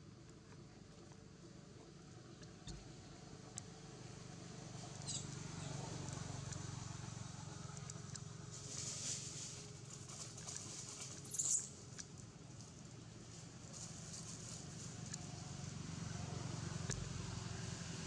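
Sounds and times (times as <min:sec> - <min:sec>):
low background hum: 0:00.0 - 0:18.0
macaque squeaks: 0:05.0 - 0:05.3
leaf rustling: 0:08.6 - 0:11.2.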